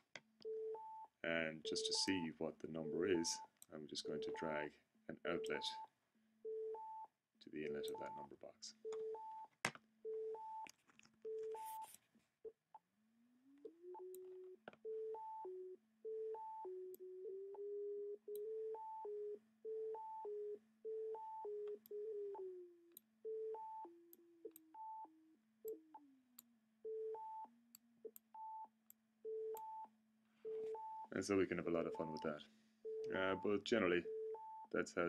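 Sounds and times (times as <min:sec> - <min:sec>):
clicks at note changes: 0:01.3 - 0:04.7, 0:05.3 - 0:05.8, 0:07.5 - 0:08.3.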